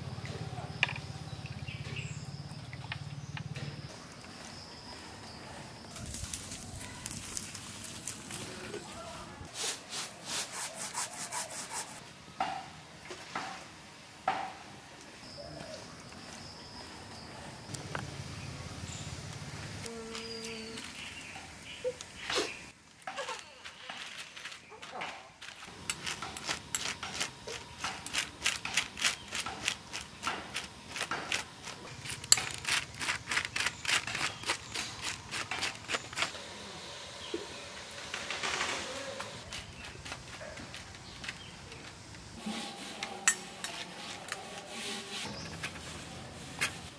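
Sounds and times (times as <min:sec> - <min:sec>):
quick scraping strokes: 0:09.5 - 0:12.0.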